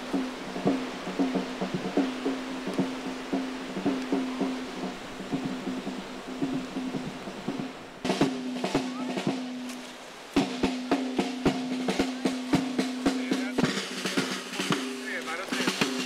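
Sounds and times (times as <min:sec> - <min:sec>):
marching wind band playing: 0:00.0 - 0:16.0
snare drum beats: 0:00.0 - 0:16.0.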